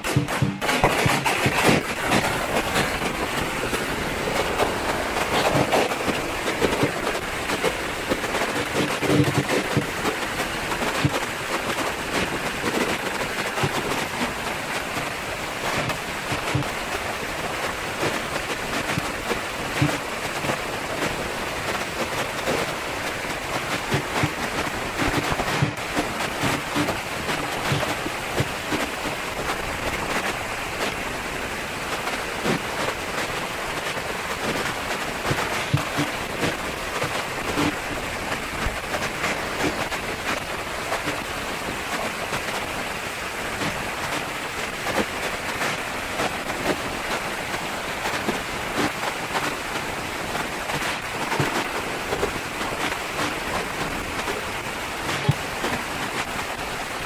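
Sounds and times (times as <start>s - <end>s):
firecrackers crackling: 0.0s - 21.2s, 21.8s - 31.1s, 31.9s - 42.5s.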